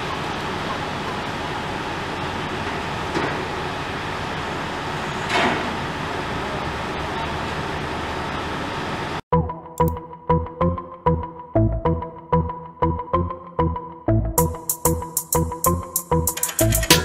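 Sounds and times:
truck engine and equipment running: 0.0s - 9.2s.

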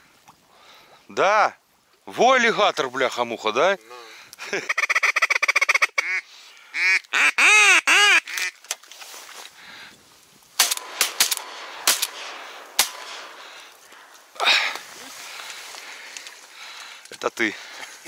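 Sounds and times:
sharp clicks: 10.6s - 17.2s.

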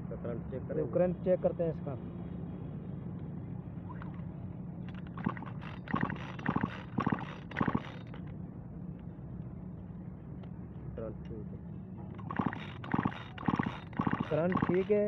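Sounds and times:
steady low hum: 0.0s - 15.0s
chainsaw recoil starter pulls: 4.9s - 8.3s, 12.2s - 15.0s.

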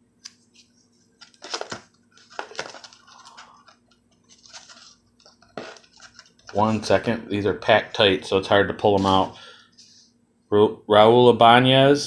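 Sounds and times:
cards in plastic holders scraping: 1.2s - 6.9s, 8.8s - 9.4s.

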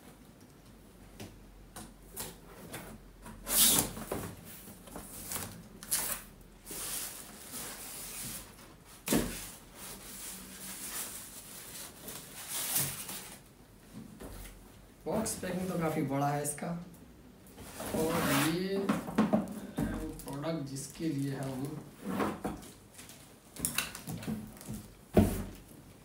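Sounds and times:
plastic packing rustling: 3.5s - 13.5s, 17.6s - 25.8s.

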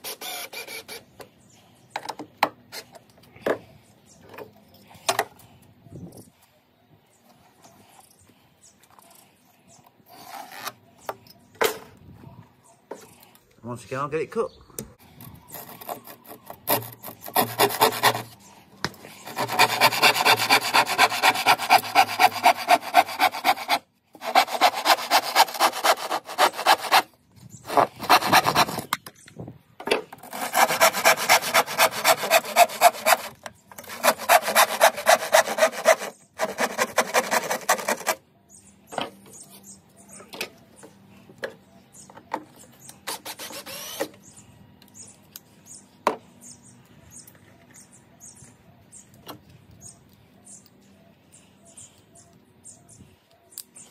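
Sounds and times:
hand saw cutting wood: 0.0s - 1.1s, 15.5s - 18.4s, 19.0s - 27.1s, 27.7s - 28.9s, 30.1s - 38.2s, 43.0s - 44.2s.

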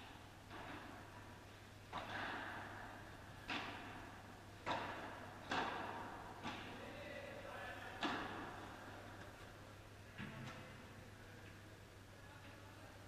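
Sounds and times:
ball bouncing: 3.4s - 4.0s, 4.6s - 6.7s, 8.0s - 8.6s
paddle hitting ball: 3.4s - 6.8s, 8.0s - 8.6s.

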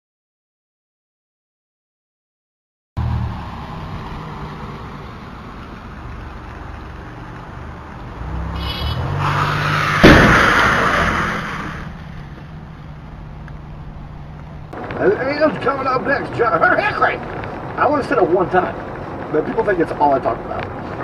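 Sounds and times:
car and road noise on wet street: 3.0s - 21.0s
loud car crash impact: 8.6s - 12.4s.

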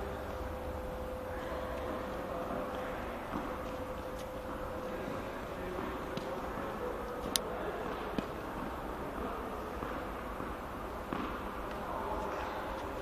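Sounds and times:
faint steady tone: 0.0s - 12.8s
indoor hall hum: 0.0s - 13.0s
racket tapping ball: 1.8s - 4.9s, 5.7s - 12.5s.

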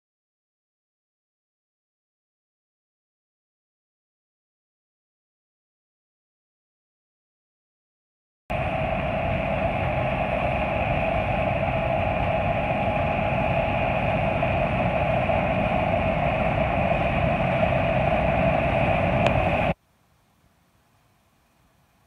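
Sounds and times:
combine harvester drone: 8.5s - 19.8s.

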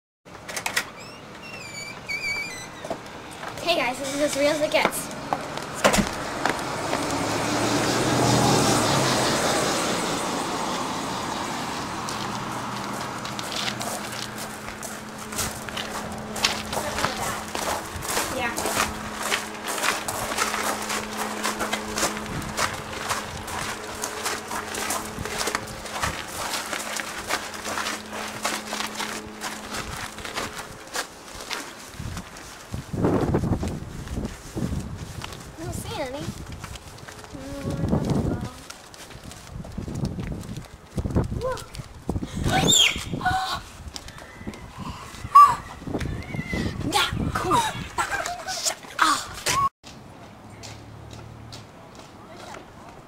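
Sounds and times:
vehicle passing by: 4.2s - 31.1s, 49.9s - 53.0s
footsteps on hard walkway: 11.9s - 42.2s
steady hum: 12.4s - 35.0s.

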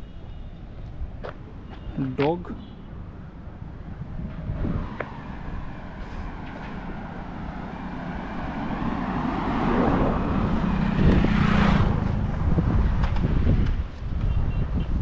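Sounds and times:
wind rumbling on microphone: 3.0s - 15.0s
car passing: 4.0s - 13.6s.

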